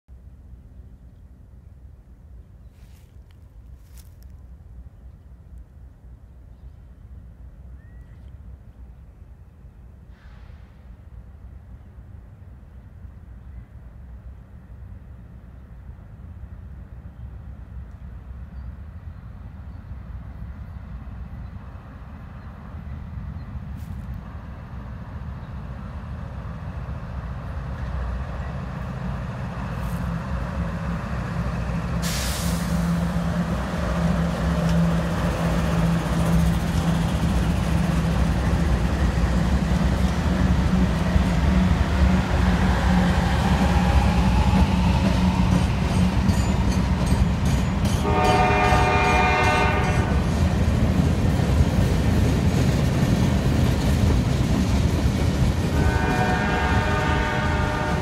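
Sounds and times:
locomotive engine drone: 0.1 - 58.0
wheels rumbling on rail: 0.1 - 58.0
locomotive horn chord: 48.0 - 50.2, 55.7 - 58.0.

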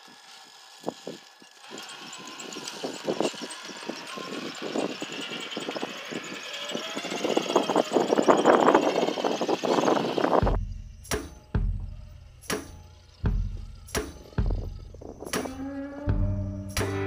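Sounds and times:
faint electric motor whine: 0.0 - 11.0
tires scraping and knocking on rock: 0.0 - 15.6.

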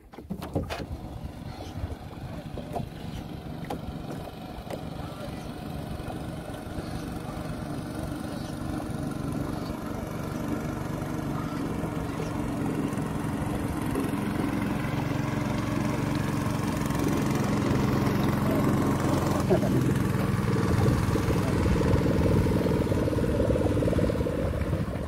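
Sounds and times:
small boat engine running: 0.0 - 25.0.

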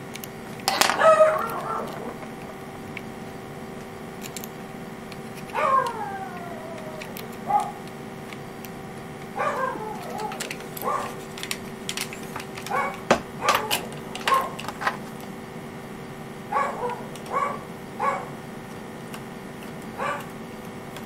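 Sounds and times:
small plastic parts clicking: 0.0 - 3.1, 3.8 - 15.2
dog whining: 0.8 - 2.7, 5.4 - 7.9, 9.3 - 11.2, 12.6 - 14.6, 16.5 - 18.4, 19.9 - 20.4.

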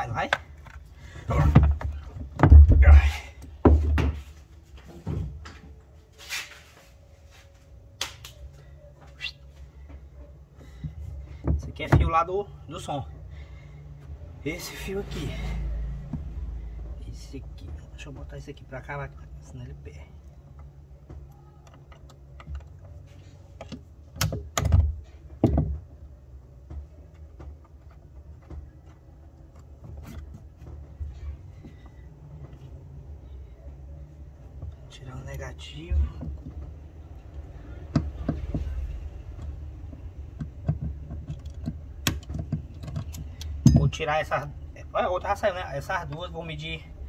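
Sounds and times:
low steady hum: 0.0 - 47.0
handling clicks and knocks: 34.6 - 44.5.

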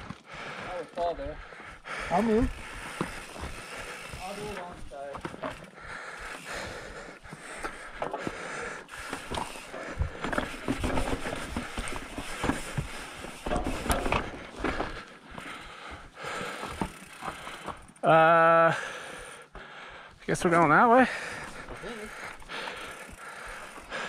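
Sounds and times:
tyres crunching over stones: 8.9 - 15.6
bike knocks and rattles: 9.0 - 15.1, 16.0 - 18.0.

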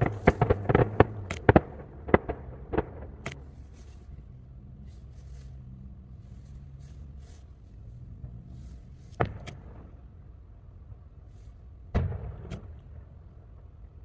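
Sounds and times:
firework shell bursting: 0.0 - 3.9
low steady rumble: 0.0 - 14.0.

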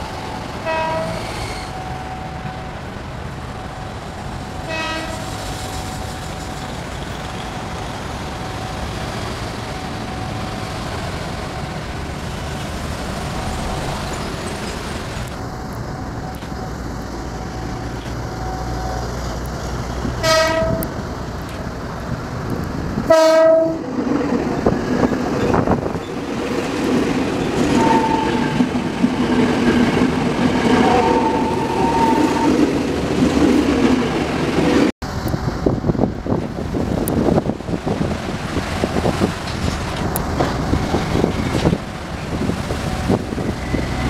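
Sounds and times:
electric train running rumble: 0.0 - 44.0
train horn: 0.6 - 1.8, 4.6 - 5.4, 20.2 - 21.0, 23.1 - 23.8, 27.7 - 28.6, 30.8 - 32.6.

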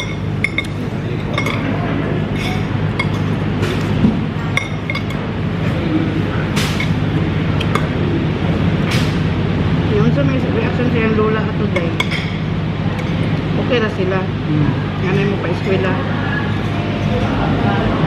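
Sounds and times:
cutlery clinking against a plate: 0.0 - 3.9, 4.5 - 5.2
steady low hum: 0.0 - 18.0.

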